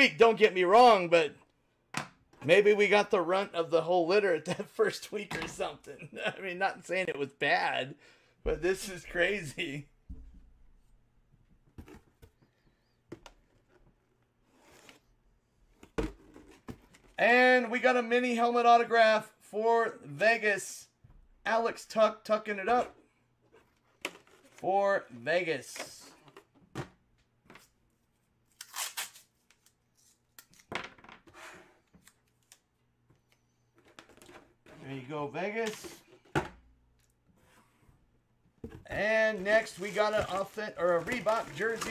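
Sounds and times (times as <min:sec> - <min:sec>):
cardboard box rustling: 0:39.3 - 0:41.9.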